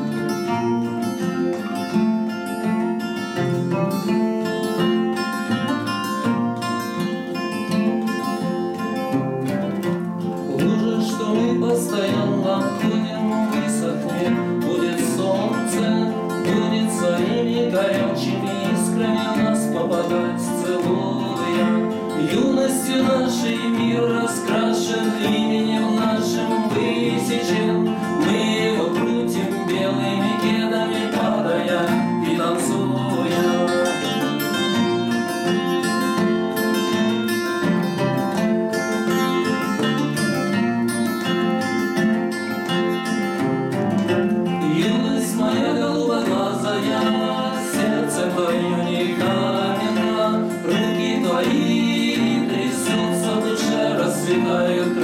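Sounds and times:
nylon-string guitar: 0:00.0 - 0:55.0
steel-string guitar strumming: 0:00.0 - 0:55.0
man singing: 0:10.2 - 0:40.6, 0:44.4 - 0:55.0.

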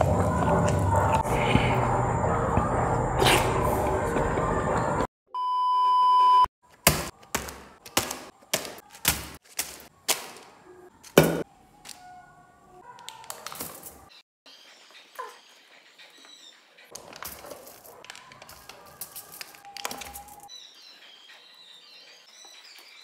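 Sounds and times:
steady beep test tone: 0:05.4 - 0:06.5.

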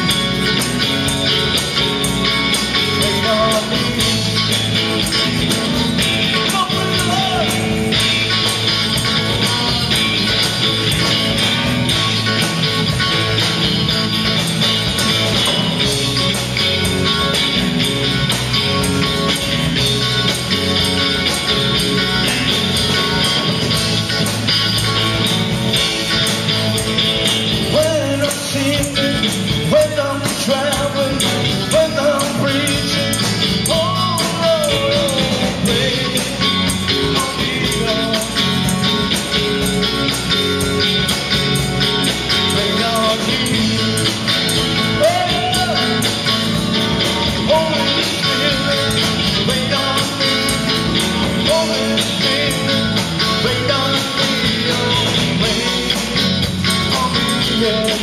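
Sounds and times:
electric guitar: 0:00.0 - 0:58.0
live rock band music: 0:00.0 - 0:58.0
man singing: 0:02.6 - 0:08.3, 0:09.0 - 0:10.5, 0:27.6 - 0:38.9, 0:42.3 - 0:58.0.

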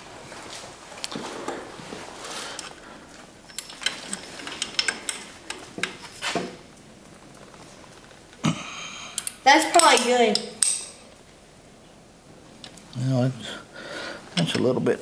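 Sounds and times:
hand ratchet clicking: 0:03.5 - 0:06.0, 0:09.2 - 0:11.0.

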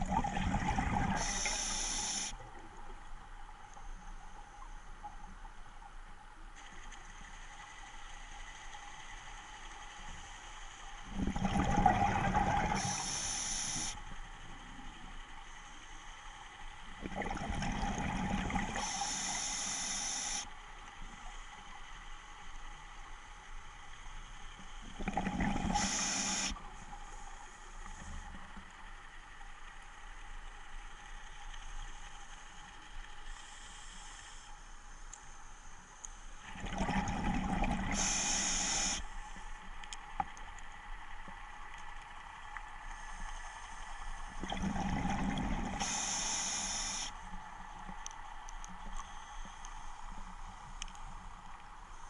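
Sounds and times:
exhaled bubbles rushing: 0:00.0 - 0:01.2, 0:11.2 - 0:12.8, 0:17.0 - 0:18.7, 0:36.5 - 0:38.0, 0:44.4 - 0:45.8
regulator hiss: 0:01.2 - 0:02.4, 0:12.7 - 0:14.0, 0:18.8 - 0:20.5, 0:25.7 - 0:28.2, 0:37.9 - 0:39.2, 0:45.8 - 0:47.3.

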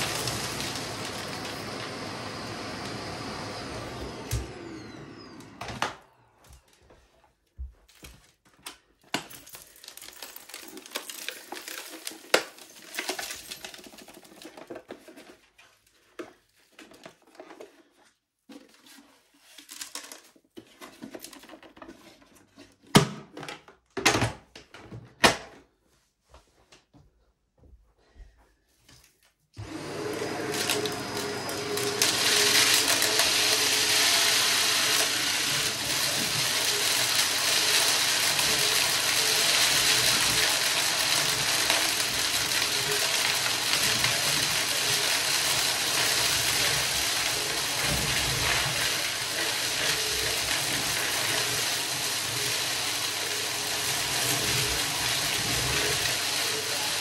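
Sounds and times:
vacuum cleaner running: 0:00.0 - 0:07.0, 0:29.6 - 0:57.0.

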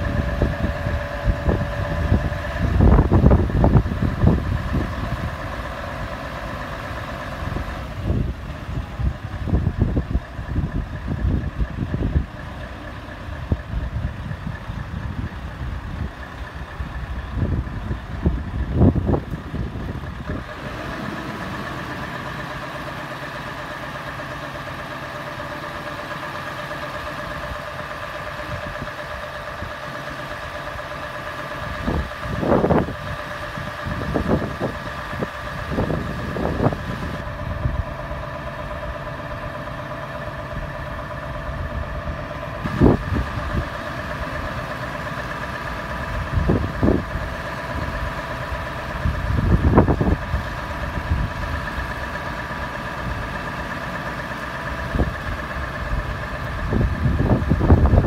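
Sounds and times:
wind buffeting microphone: 0:00.0 - 0:22.5, 0:30.4 - 0:58.0
truck engine running: 0:00.0 - 0:58.0
hydraulic whine: 0:16.9 - 0:58.0.

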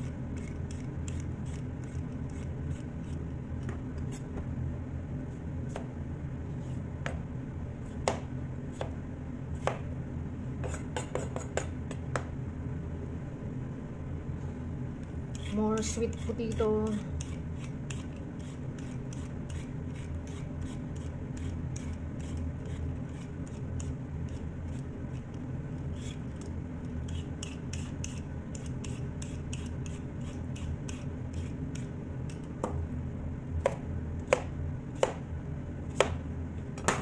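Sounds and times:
peeler scraping sweet potato: 0:00.0 - 0:03.3, 0:15.3 - 0:32.5
knife chopping on plastic board: 0:08.0 - 0:09.0, 0:09.6 - 0:09.8, 0:10.6 - 0:12.3, 0:33.6 - 0:35.2, 0:35.9 - 0:36.2, 0:36.8 - 0:37.0.

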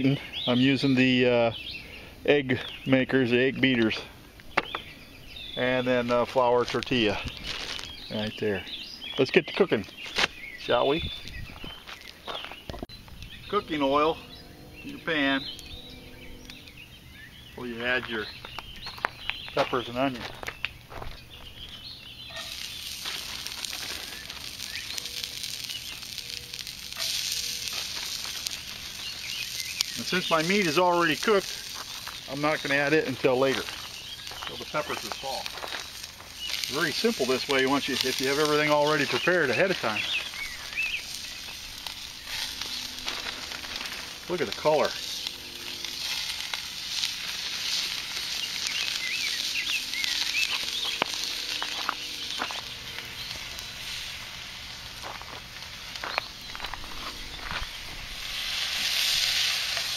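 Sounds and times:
bird chirping: 0:00.0 - 0:58.5
crackling: 0:00.0 - 0:59.9
sharp pops: 0:04.5 - 0:04.9
vegetables sizzling in hot oil: 0:22.2 - 0:59.9.

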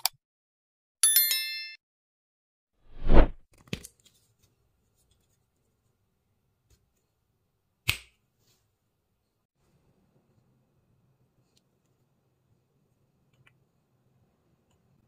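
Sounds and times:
loud whoosh: 0:02.9 - 0:03.4.

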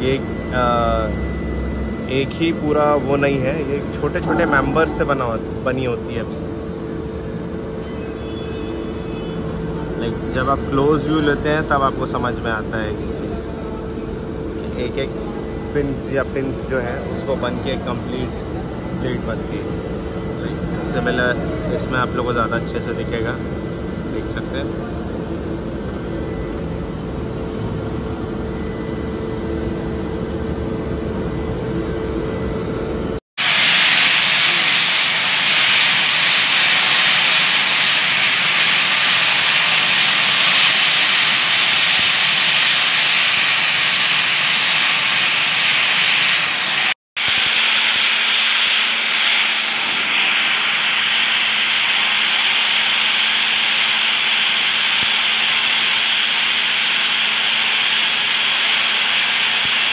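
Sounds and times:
low rumble and hum: 0:00.0 - 0:07.8
sandblasting hiss: 0:33.4 - 0:59.9.

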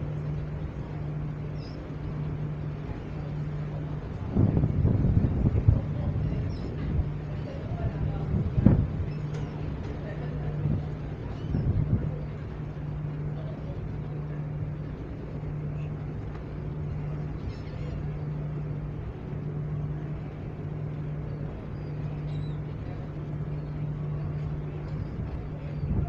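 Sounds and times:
ship machinery hum: 0:00.0 - 0:26.0
wind and sea rushing: 0:00.0 - 0:26.0
faint seagull calls: 0:21.6 - 0:22.8.

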